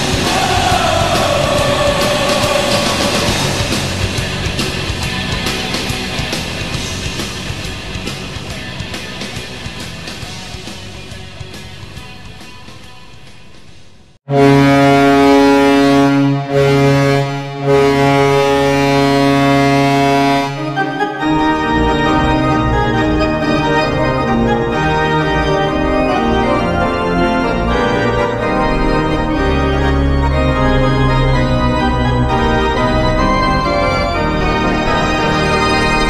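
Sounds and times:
goal song with organ: 0:00.0 - 0:05.8, 0:14.3 - 0:36.0
goal horn blaring: 0:14.3 - 0:36.0.

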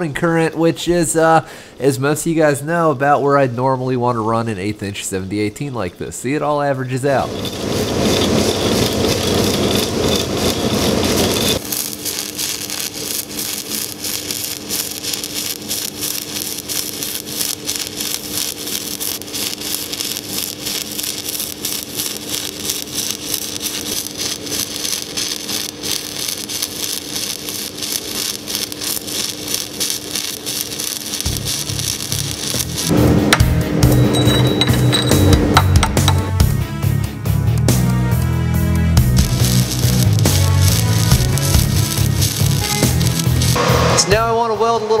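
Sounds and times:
welding arc crackling: 0:07.0 - 0:36.6, 0:37.3 - 0:44.4
steady hum: 0:07.1 - 0:36.4, 0:39.2 - 0:44.4.

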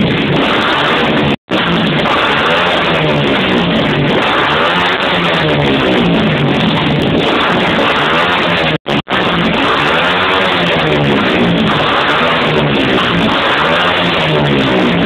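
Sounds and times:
motorcycle engine revving: 0:00.0 - 0:15.0
rock music with guitar: 0:00.0 - 0:15.0.

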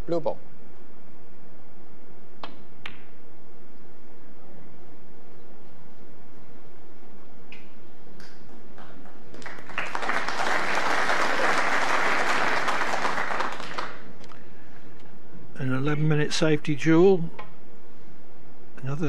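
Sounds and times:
audience applauding: 0:08.6 - 0:14.1.

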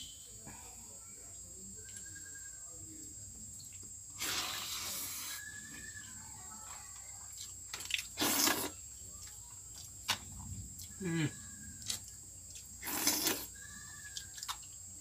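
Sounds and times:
faint steady high tone: 0:00.0 - 0:03.7
person slurping food: 0:08.2 - 0:08.7, 0:12.8 - 0:13.5.

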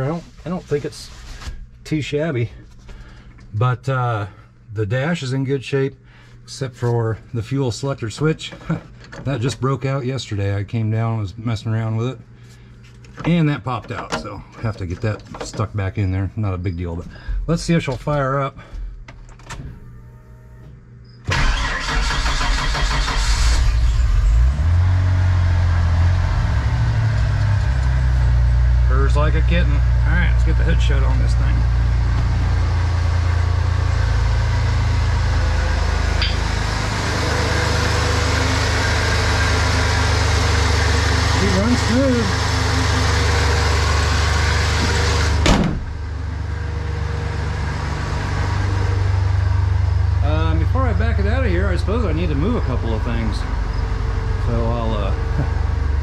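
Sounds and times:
truck engine starting and idling: 0:21.3 - 0:56.0
hood slamming shut: 0:44.8 - 0:46.0.

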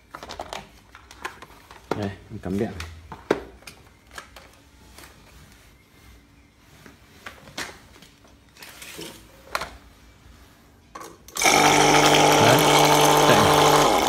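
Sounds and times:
pressure washer motor humming: 0:11.4 - 0:14.0.

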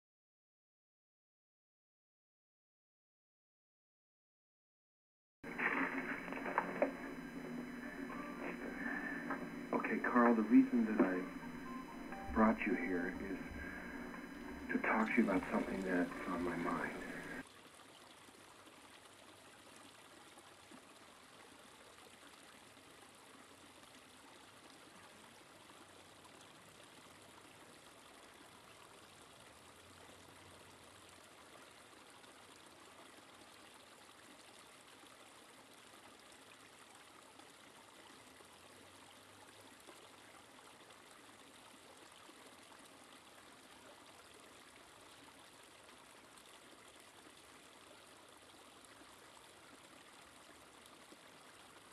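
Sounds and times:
creek trickling over log: 0:17.5 - 0:51.9.

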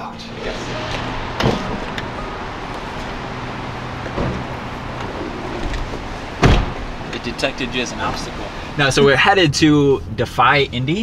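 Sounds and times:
car door opening: 0:00.4 - 0:09.1
loud thump: 0:00.5 - 0:07.3.

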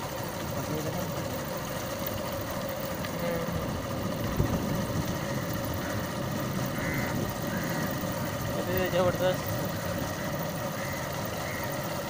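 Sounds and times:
motorcycle engine rumbling: 0:00.0 - 0:12.0.

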